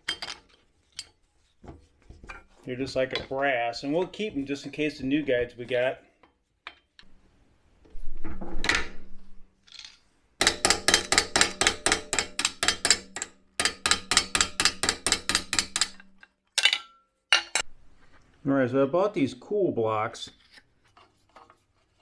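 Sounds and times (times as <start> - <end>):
rapid metallic clicking of hand tool: 10.4 - 16.3.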